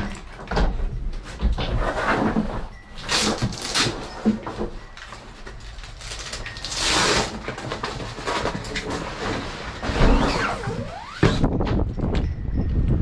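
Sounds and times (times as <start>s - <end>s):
small clicks and rustles: 2.4s - 9.8s.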